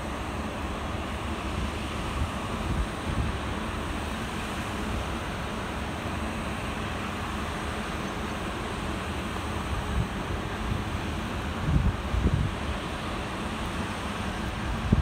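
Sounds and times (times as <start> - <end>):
locomotive rumbling along track: 0.0 - 15.0
wind noise on microphone: 1.5 - 3.6, 9.7 - 12.9, 14.5 - 15.0.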